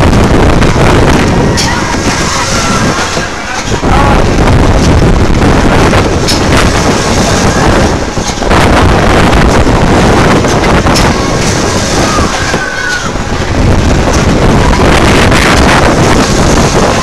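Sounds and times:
deep uneven rumble of a ride: 0.0 - 17.0
wind rushing over microphone: 0.0 - 17.0.

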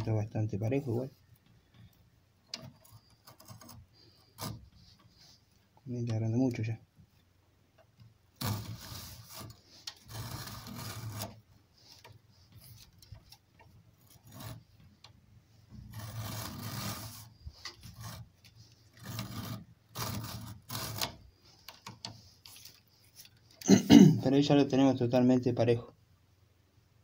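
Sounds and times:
leather lace scraping through blade: 2.6 - 5.4, 8.4 - 14.8, 15.7 - 23.7.

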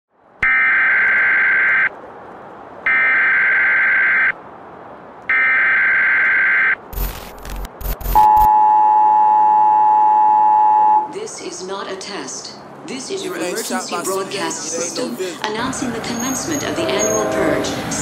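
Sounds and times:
buzzing data bursts: 5.3 - 8.5
crackling static glitches: 5.3 - 8.5
two-tone attention signal: 8.1 - 11.1.

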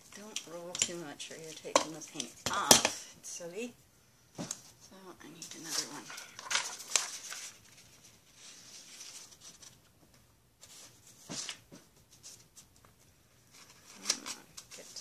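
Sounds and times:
paper rustling and crinkling: 5.4 - 15.0.

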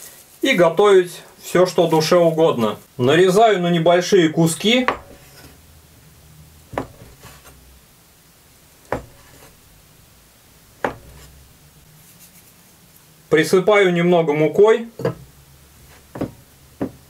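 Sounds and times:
knife knocking on wooden board: 4.8 - 5.4, 6.7 - 7.3, 8.9 - 9.5, 10.8 - 11.4, 15.0 - 15.2, 15.9 - 17.0
faint rubbing: 4.8 - 5.6, 6.7 - 7.7, 8.9 - 9.8, 10.8 - 12.8, 15.8 - 16.4
knife slicing through dough: 4.8 - 5.6, 6.7 - 7.6, 8.9 - 9.6, 10.8 - 11.4, 15.8 - 17.0.

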